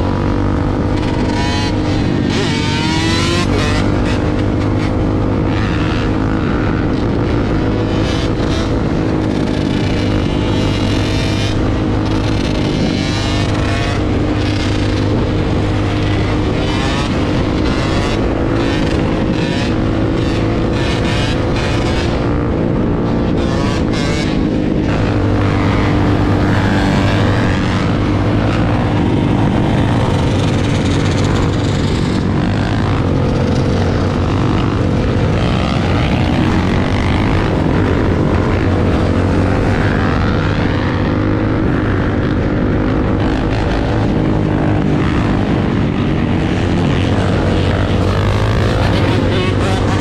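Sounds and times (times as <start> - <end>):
other dirt bike engines: 0.0 - 50.0
quad engine at speed: 0.0 - 50.0
wind rush: 0.0 - 50.0.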